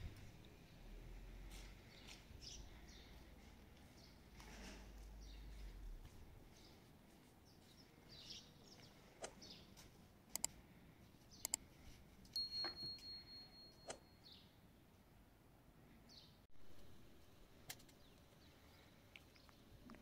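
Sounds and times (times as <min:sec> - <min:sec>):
small birds chirping: 0:01.5 - 0:04.4, 0:05.0 - 0:14.6, 0:17.3 - 0:20.0
sharp clicks: 0:10.3 - 0:10.6, 0:11.4 - 0:11.6.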